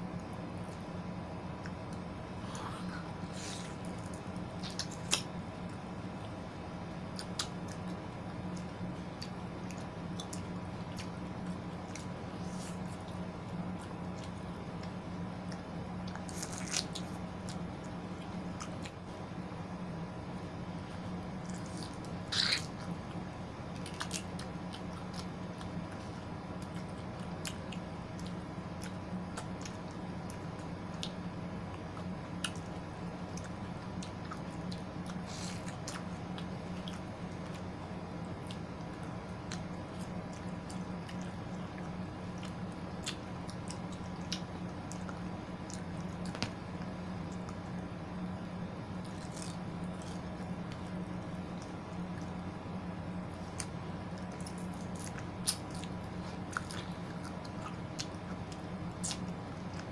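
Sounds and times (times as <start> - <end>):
steady low hum: 0.0 - 59.9
wet chewing and biting of fruit: 1.5 - 6.4, 7.0 - 19.8, 20.7 - 59.9
wet chewing and mouth clicks: 38.4 - 47.9, 53.3 - 59.9.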